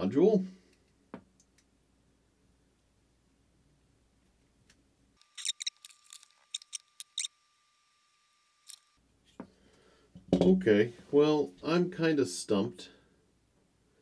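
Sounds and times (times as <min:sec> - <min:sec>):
screwdriver and metal parts clicking: 0:05.2 - 0:07.3, 0:08.7 - 0:08.9.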